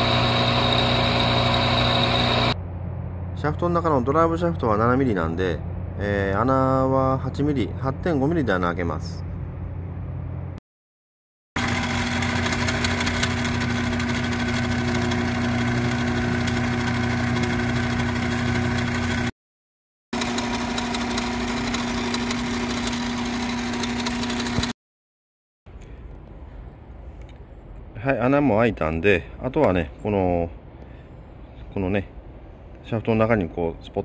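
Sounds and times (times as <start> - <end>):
drill cutting metal: 0.0 - 2.6, 11.6 - 19.3, 20.2 - 24.8
lathe motor hum: 0.0 - 2.6, 11.6 - 19.3, 20.2 - 24.7.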